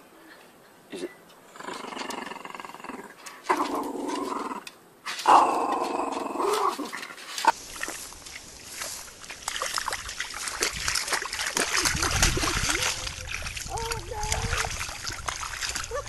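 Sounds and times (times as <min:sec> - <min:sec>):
small dog growling: 0:01.5 - 0:07.0
dog digging in mud: 0:06.6 - 0:16.0.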